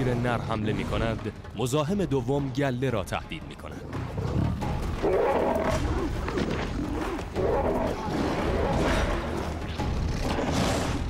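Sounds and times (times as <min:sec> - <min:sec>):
lions snarling and growling: 0:03.8 - 0:11.0.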